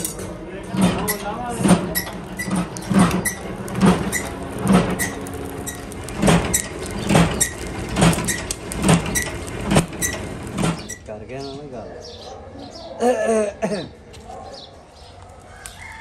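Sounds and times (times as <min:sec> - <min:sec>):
rhythmic mechanical thumping: 0:00.0 - 0:11.1
short high squeak: 0:05.0 - 0:05.9.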